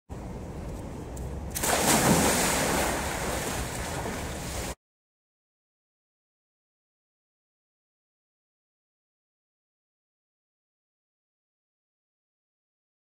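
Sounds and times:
loud splash into pool: 1.6 - 4.8
water sloshing: 1.6 - 4.8.

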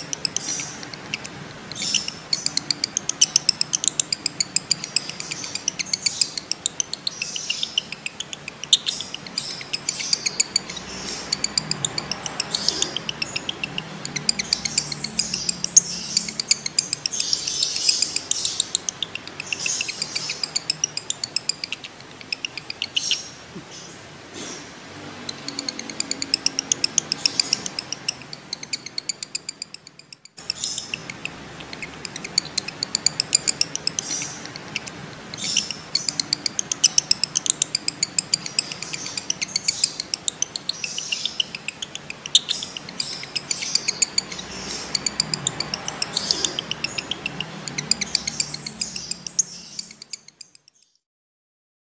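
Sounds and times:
lovebird chattering shrill notes: 0.0 - 23.4, 25.2 - 50.9.

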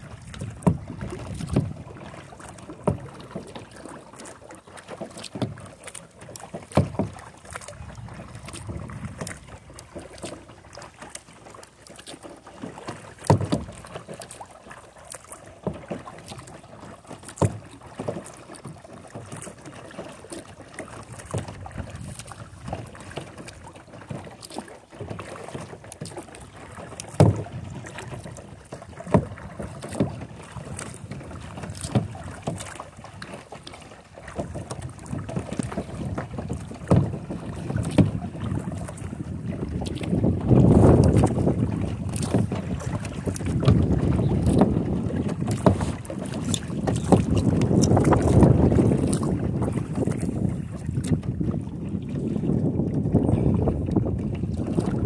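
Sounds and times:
water splashing off paddle: 0.0 - 55.0
wind on microphone: 7.7 - 9.9, 34.5 - 55.0.

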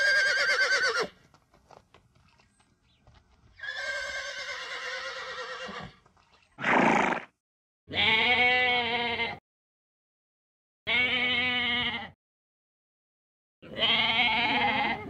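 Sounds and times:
horse whinnying: 0.0 - 1.1, 3.6 - 6.0, 6.6 - 7.3
goat bleating: 7.9 - 9.4, 10.9 - 12.2, 13.6 - 15.0.

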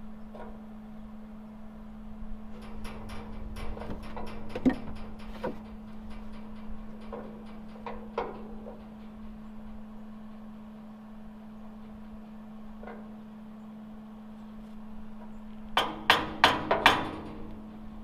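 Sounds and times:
steady low hum: 0.0 - 18.0
metal clicks and knocks: 2.5 - 10.4, 15.8 - 17.6.

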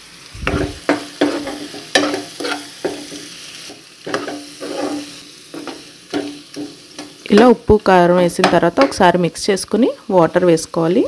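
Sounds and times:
faint sizzle of frying: 0.0 - 11.0
spoon scraping frying pan: 0.4 - 7.6.

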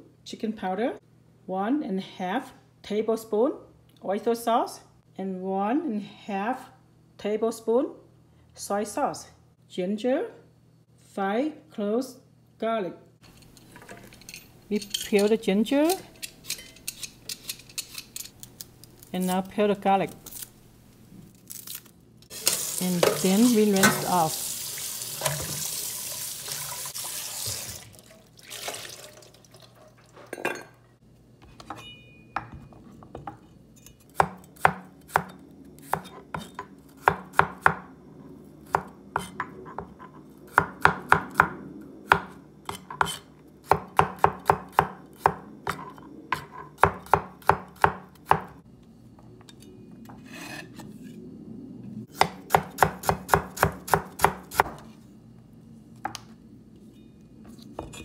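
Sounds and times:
tap water running into sink: 22.3 - 30.1.

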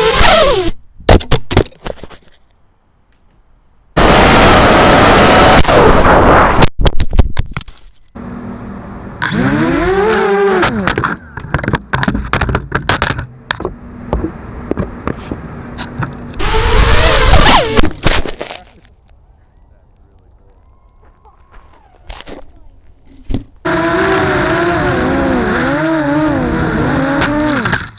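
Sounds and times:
drone motors whining: 4.0 - 6.6, 8.2 - 11.6, 13.6 - 18.0, 20.5 - 27.9.

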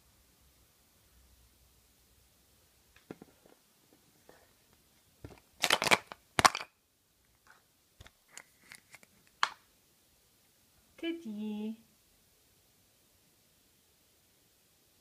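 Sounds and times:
plastic clicks and rattles: 5.3 - 6.7.

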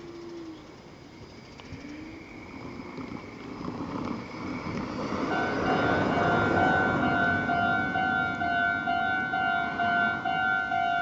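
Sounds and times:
car passing: 2.2 - 11.0
crossing warning bell ringing: 5.0 - 11.0.

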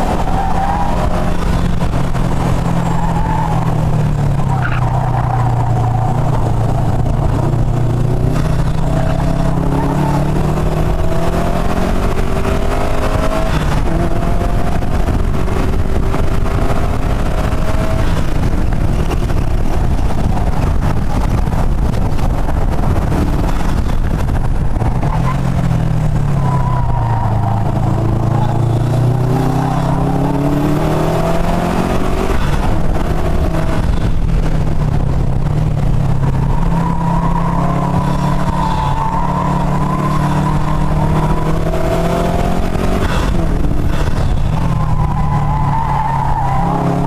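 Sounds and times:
car engine accelerating: 0.0 - 47.0
wind and road noise: 0.0 - 47.0.

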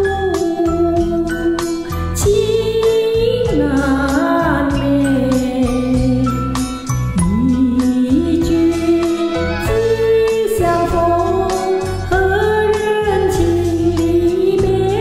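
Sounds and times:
instrumental backing: 0.0 - 15.0
person singing ballad: 0.0 - 15.0.

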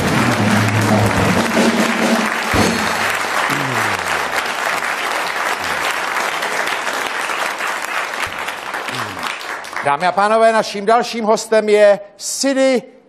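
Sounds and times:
music playing: 0.0 - 4.3
audience applauding: 0.0 - 10.5.

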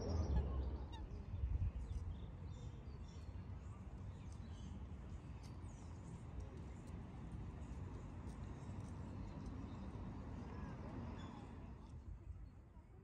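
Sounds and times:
low outdoor rumble: 0.0 - 1.8.

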